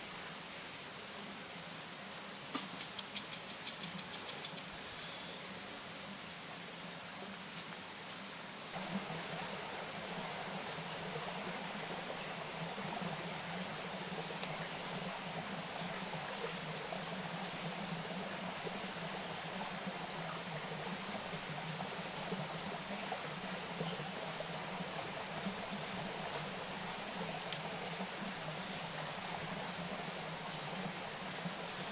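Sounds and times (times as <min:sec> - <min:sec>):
even hiss: 0:00.0 - 0:31.9.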